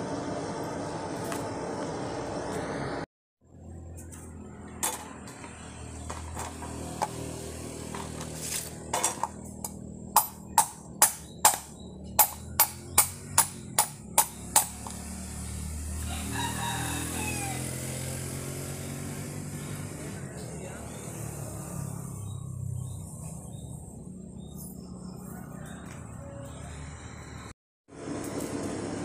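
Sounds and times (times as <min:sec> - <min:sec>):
machete knocking on coconut shell: 0:10.2 - 0:15.0
rooster crowing: 0:15.8 - 0:18.2, 0:25.1 - 0:27.5.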